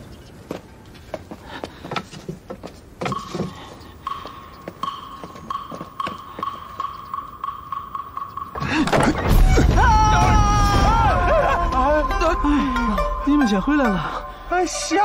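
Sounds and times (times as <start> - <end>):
hollow woodblock taps: 3.0 - 9.0.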